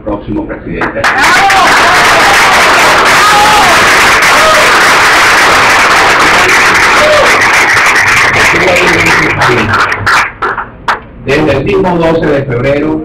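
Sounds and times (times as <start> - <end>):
crowd applauding: 0.8 - 11.0.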